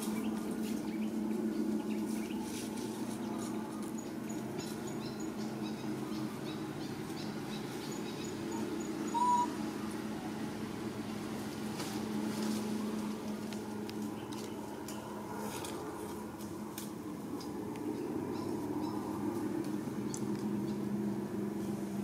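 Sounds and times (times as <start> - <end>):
outdoor background hum: 0.0 - 22.0
short rising animal call: 9.1 - 9.6.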